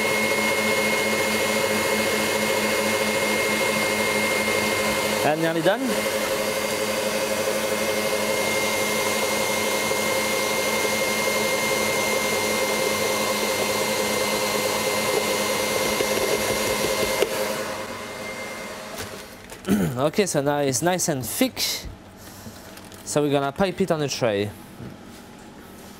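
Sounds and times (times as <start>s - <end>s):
stand mixer whisk beating: 0.0s - 19.0s
mixer motor whine: 0.0s - 19.6s.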